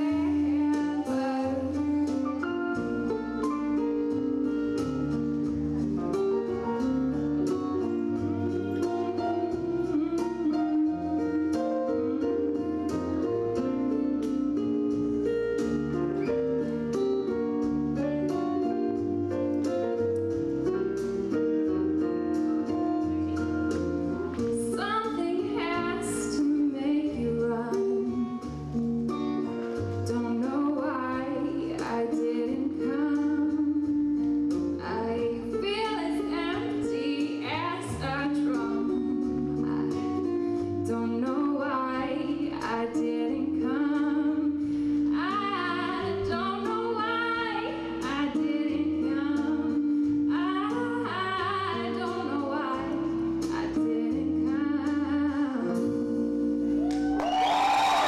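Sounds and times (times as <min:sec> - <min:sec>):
woman singing into microphone: 0:00.0 - 0:02.2, 0:07.5 - 0:13.3, 0:23.3 - 0:28.6, 0:30.0 - 0:56.7
instrumental accompaniment: 0:00.0 - 0:58.0.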